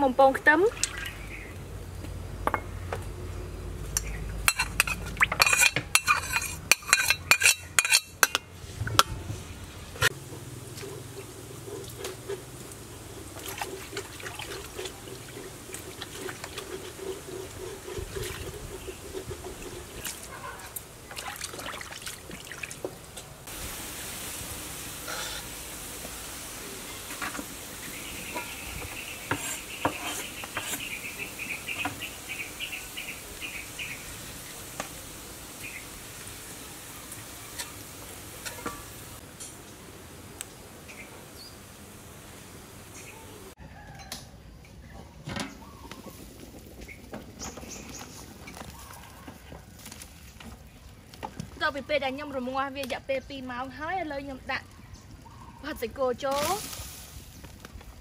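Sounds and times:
garlic sizzling in oil: 0:03.5 - 0:43.6, 0:51.2 - 0:58.0
metal spatula scraping wok: 0:03.9 - 0:20.8, 0:25.1 - 0:25.5, 0:27.1 - 0:32.0, 0:37.5 - 0:39.0.

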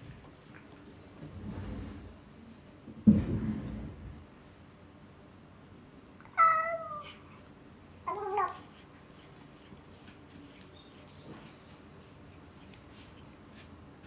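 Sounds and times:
cat meowing: 0:06.2 - 0:07.4, 0:08.1 - 0:08.7.

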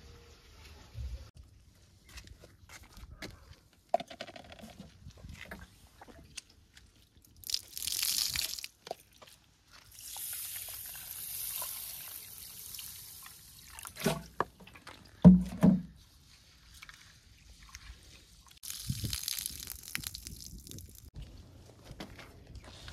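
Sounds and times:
water pouring and splashing: 0:05.4 - 0:21.2.

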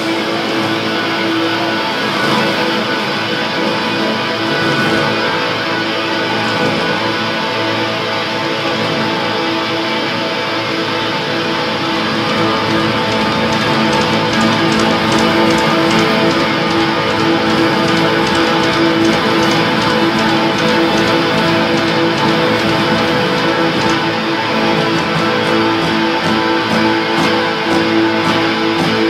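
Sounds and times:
black metal band playing live: 0:00.0 - 0:29.0
sharp repeated hits: 0:12.2 - 0:26.7.

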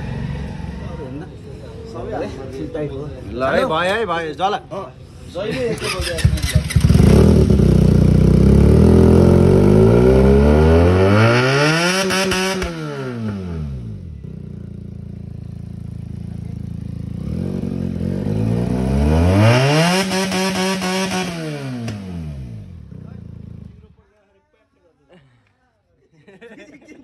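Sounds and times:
motorcycle engine revving: 0:00.0 - 0:01.2, 0:05.8 - 0:23.9.

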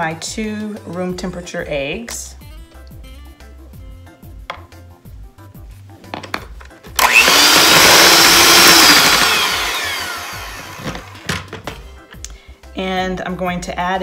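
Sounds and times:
electric hand mixer beating: 0:07.0 - 0:11.5.

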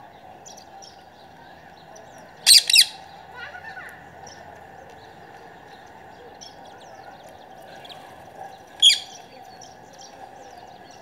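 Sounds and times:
small birds chirping: 0:00.0 - 0:11.0
parakeet screeching: 0:02.5 - 0:03.0, 0:08.8 - 0:09.1.

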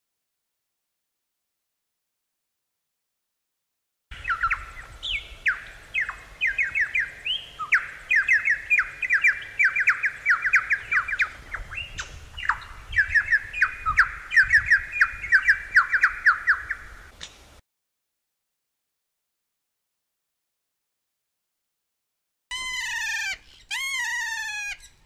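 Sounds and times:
bird singing whistled notes: 0:04.1 - 0:16.9.

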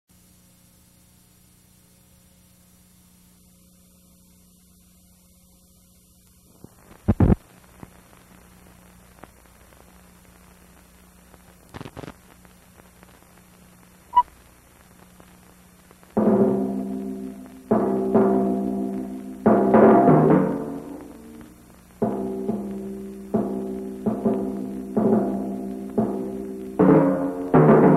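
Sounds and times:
mains hum: 0:00.1 - 0:27.9
film pops and clicks: 0:09.2 - 0:16.2
loud struck chords: 0:16.2 - 0:27.9.

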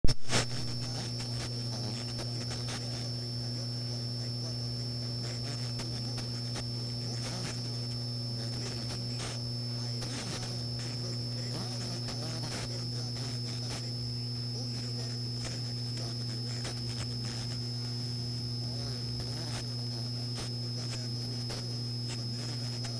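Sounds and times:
radio static hum: 0:00.0 - 0:22.9
static crackles: 0:00.0 - 0:22.9
thin high whine: 0:00.0 - 0:22.9
faint unintelligible speech: 0:01.7 - 0:17.5.

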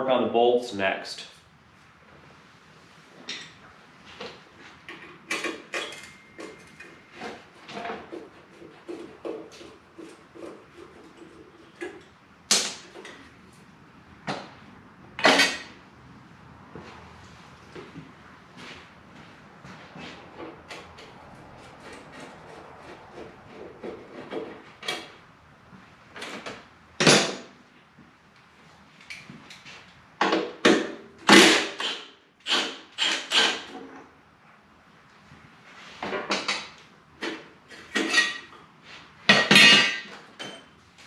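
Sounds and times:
metal tools clanking and rattling: 0:04.9 - 0:08.1, 0:15.2 - 0:15.8, 0:37.8 - 0:38.6, 0:39.3 - 0:40.7.

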